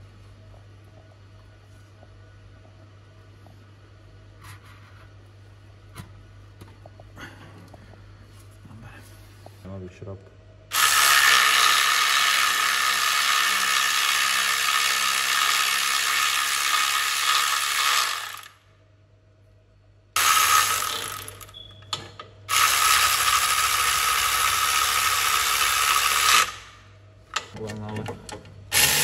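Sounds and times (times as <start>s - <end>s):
cordless power tool whirring: 10.7s - 18.6s, 20.2s - 21.5s, 22.5s - 26.7s, 28.7s - 29.0s.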